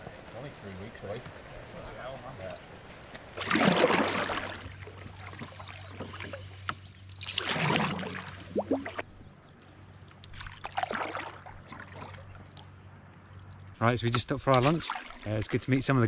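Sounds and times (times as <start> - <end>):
low steady hum: 0.0 - 16.0
paddle swishing through water: 3.2 - 9.2, 10.0 - 15.8.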